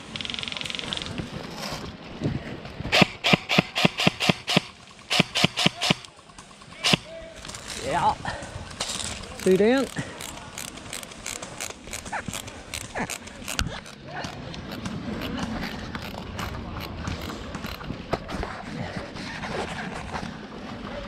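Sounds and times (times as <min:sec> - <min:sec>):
distant voices: 0:00.0 - 0:21.0
gear rattling with sharp clicks: 0:03.0 - 0:08.0, 0:08.8 - 0:18.1.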